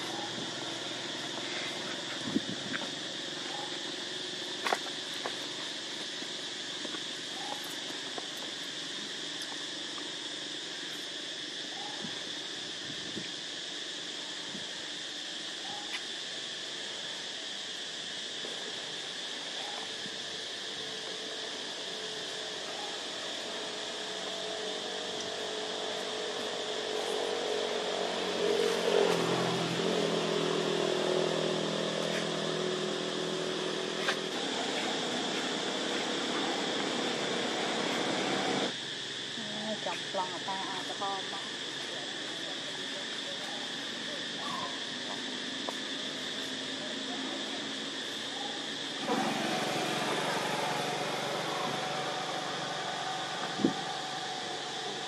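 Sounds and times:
engine humming: 0.0s - 10.8s, 20.4s - 38.8s, 44.8s - 55.0s
high-pitched insect drone: 0.0s - 55.0s.

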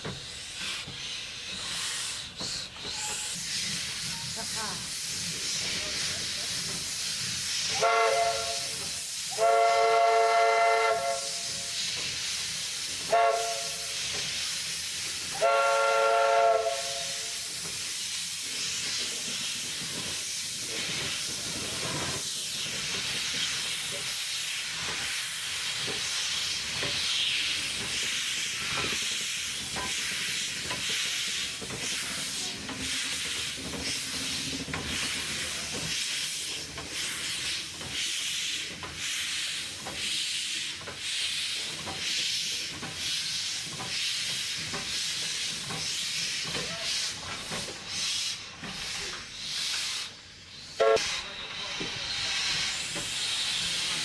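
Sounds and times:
hiss of escaping steam: 0.0s - 54.0s
steam whistle blowing: 7.8s - 11.5s, 13.1s - 14.0s, 15.3s - 17.4s, 50.8s - 51.2s.

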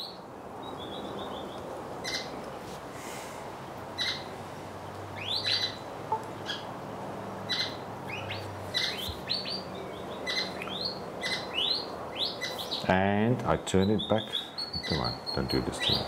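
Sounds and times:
birds chirping: 0.0s - 2.6s, 3.8s - 16.0s.

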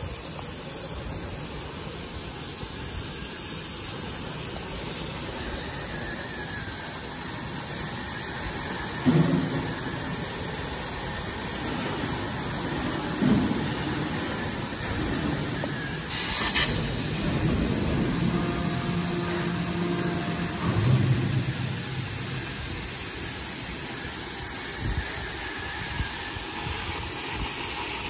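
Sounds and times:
cutting torch hissing: 0.0s - 28.0s
low engine-like hum: 14.8s - 23.3s.

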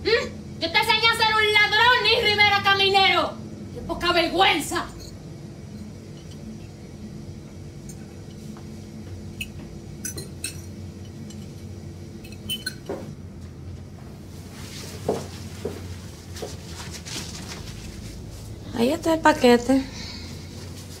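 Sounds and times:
low steady hum: 0.0s - 21.0s
dishes and glassware clinking: 9.4s - 11.6s, 12.2s - 13.1s
rustling handling noise: 14.0s - 19.2s.

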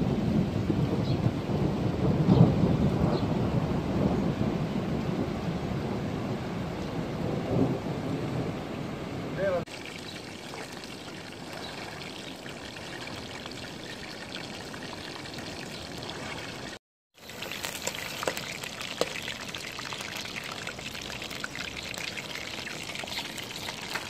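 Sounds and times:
fish sizzling in oil: 17.1s - 24.0s
sharp crackles of frying: 17.1s - 24.0s
rain hiss: 17.2s - 24.0s.

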